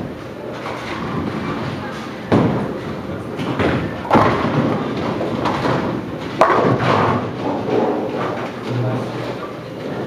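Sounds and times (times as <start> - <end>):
bowling ball rolling on wood: 0.5 - 10.0
bowling pins crashing: 0.6 - 8.8
bowling ball thud: 0.8 - 8.3.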